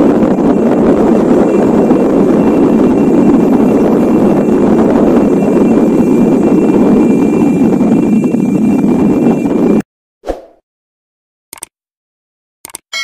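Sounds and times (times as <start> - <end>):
volcano eruption rushing rumble: 0.0 - 9.8.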